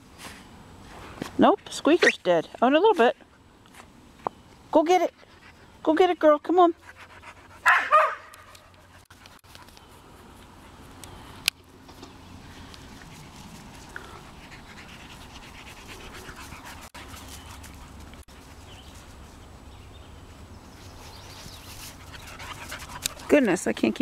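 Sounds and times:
dog panting: 0:06.7 - 0:07.9, 0:12.9 - 0:18.3, 0:21.8 - 0:23.5.

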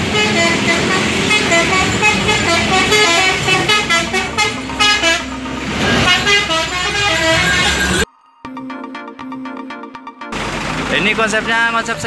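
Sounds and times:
heavy vehicle passing: 0:00.0 - 0:08.0, 0:10.3 - 0:12.0
musical vehicle horn tune: 0:00.0 - 0:08.1
street traffic: 0:00.0 - 0:08.1, 0:10.3 - 0:12.0.

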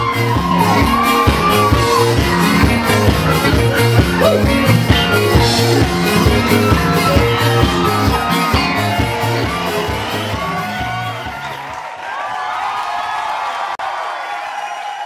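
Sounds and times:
upbeat band music: 0:00.0 - 0:11.8.

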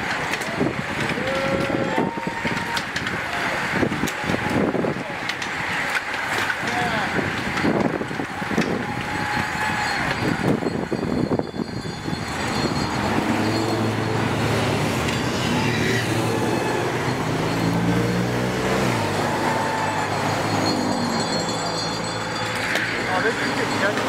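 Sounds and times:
wind noise: 0:00.0 - 0:05.7, 0:06.6 - 0:16.2
bicycles whirring past: 0:00.0 - 0:24.0
cars driving by: 0:00.0 - 0:24.0.

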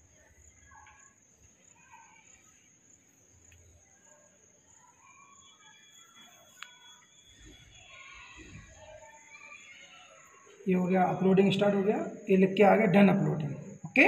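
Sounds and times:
distant chirps: 0:00.0 - 0:14.0.

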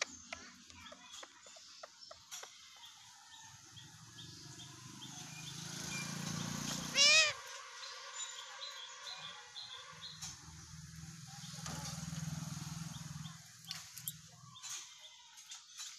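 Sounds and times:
parakeet screech: 0:06.9 - 0:07.5.

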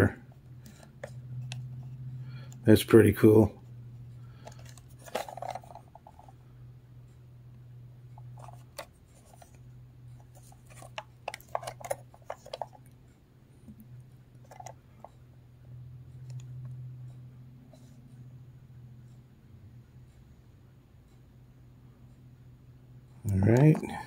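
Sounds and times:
steady low hum: 0:00.0 - 0:24.0
plastic radio clicks and scrapes: 0:00.6 - 0:02.6, 0:04.4 - 0:06.3, 0:08.2 - 0:09.6, 0:10.2 - 0:13.0, 0:14.4 - 0:15.2.

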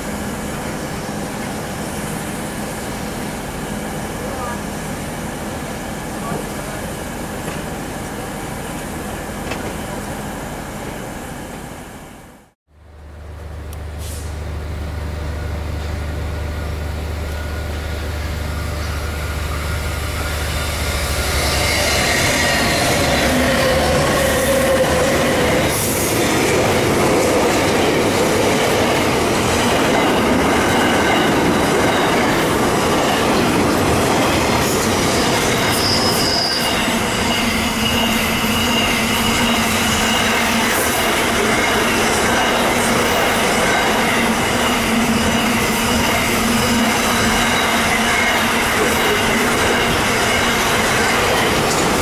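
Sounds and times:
train wheels rumbling on rails: 0:00.0 - 0:12.4, 0:13.4 - 0:52.0
high-pitched wheel squeals: 0:35.1 - 0:40.9.

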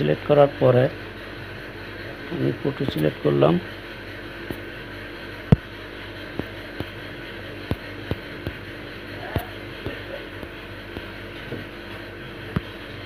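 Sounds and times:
low room hum: 0:00.0 - 0:13.0
sharp clicks and taps: 0:06.3 - 0:07.0, 0:07.7 - 0:08.7, 0:09.4 - 0:11.7.

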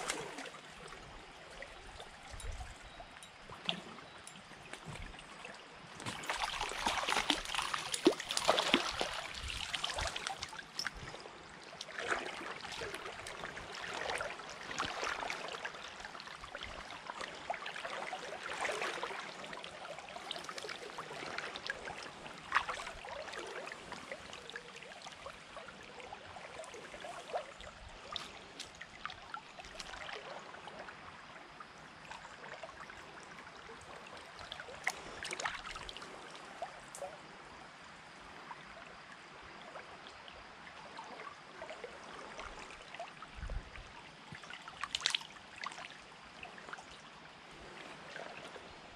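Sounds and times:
splashing in water: 0:00.0 - 0:01.0, 0:04.7 - 0:16.9
stream water flowing and trickling: 0:00.0 - 0:48.9.

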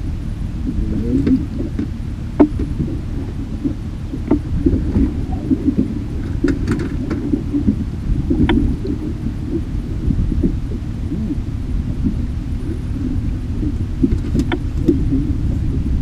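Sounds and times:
wind buffeting microphone: 0:00.0 - 0:16.0
gear clicks and knocks: 0:01.1 - 0:10.8, 0:13.8 - 0:15.1.

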